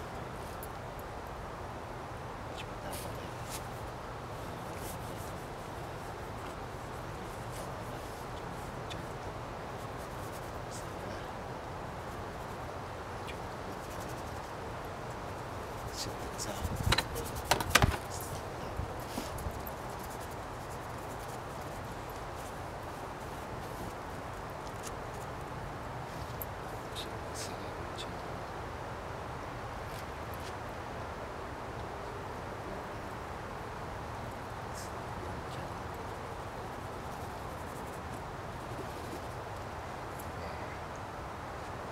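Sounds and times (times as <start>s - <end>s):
steady outdoor hiss: 0.0s - 41.9s
faint high rustle: 2.6s - 11.2s, 13.6s - 27.2s, 34.7s - 40.8s
paintbrush scratching: 15.8s - 18.4s.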